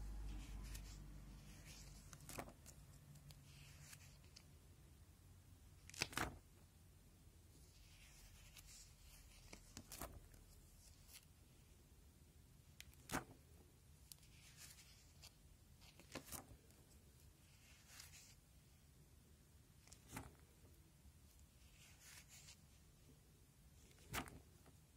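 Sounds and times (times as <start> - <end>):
plastic pages crinkling: 0.2 - 4.4, 5.8 - 6.4, 7.8 - 11.3, 14.1 - 16.8, 23.8 - 24.7
soft page slaps: 1.6 - 4.1, 5.8 - 6.4, 8.5 - 10.3, 12.8 - 13.4, 15.9 - 16.5, 19.8 - 20.4, 23.9 - 24.7.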